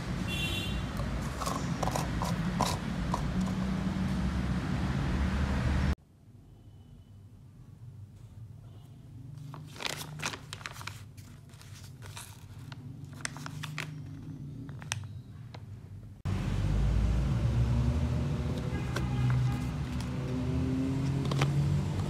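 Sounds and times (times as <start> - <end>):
plastic bag crinkling: 9.4 - 15.2.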